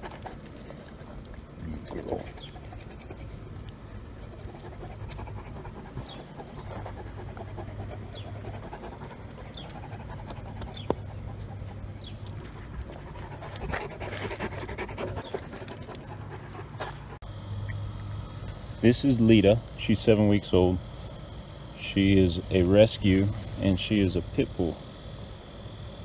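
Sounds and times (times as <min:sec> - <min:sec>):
dog panting: 0:00.0 - 0:17.2.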